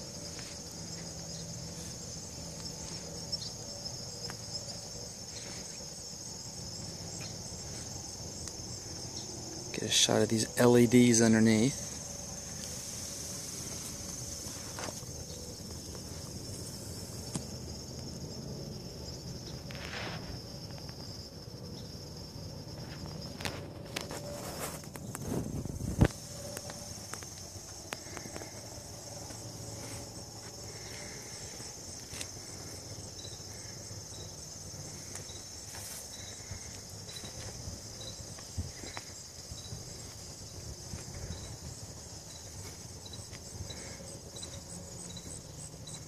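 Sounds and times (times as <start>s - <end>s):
light footsteps: 0.0s - 3.3s, 11.7s - 17.6s
insects trilling: 0.0s - 46.0s.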